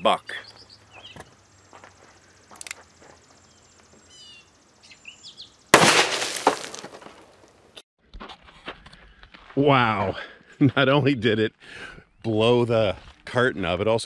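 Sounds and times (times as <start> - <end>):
faint bird chirps: 0.0 - 5.7
revolver gunshot: 5.8 - 7.1.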